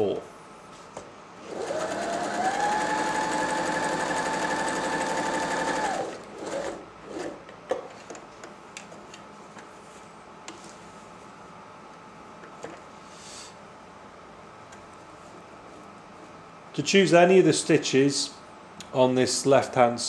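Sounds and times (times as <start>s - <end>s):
sewing machine running: 1.4s - 7.3s.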